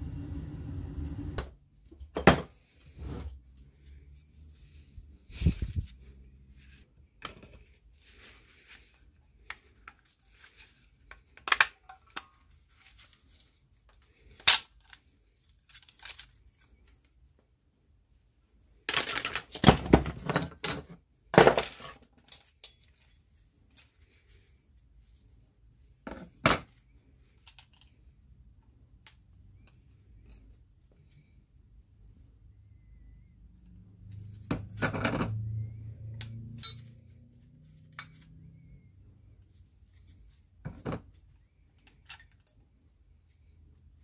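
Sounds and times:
metal parts clinking: 14.4 - 16.8
metal parts rattling: 15.5 - 16.8.

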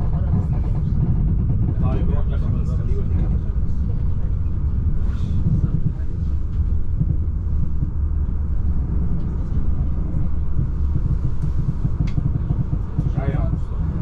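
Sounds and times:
train rumble from inside carriage: 0.0 - 14.0.

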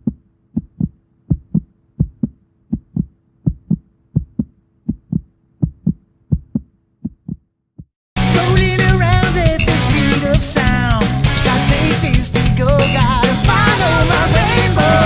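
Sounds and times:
heartbeat thumping: 0.0 - 8.0
loud rock music: 8.2 - 15.0.

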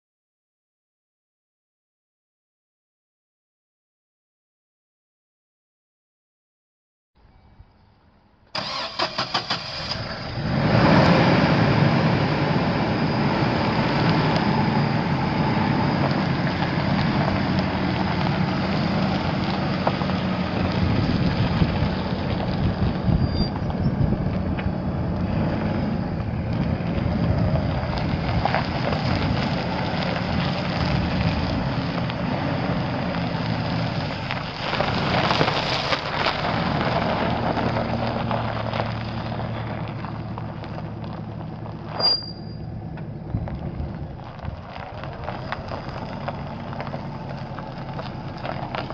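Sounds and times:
engine starter cranking: 8.5 - 10.3.

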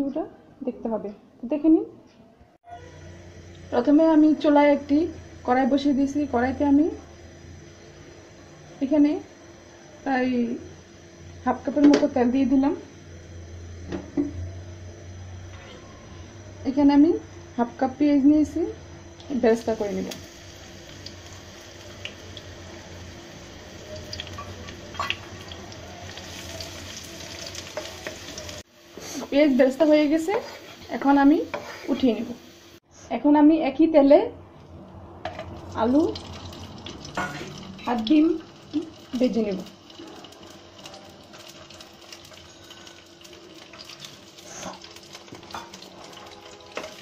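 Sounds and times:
onions sizzling in hot oil: 16.7 - 32.8, 35.4 - 47.0.

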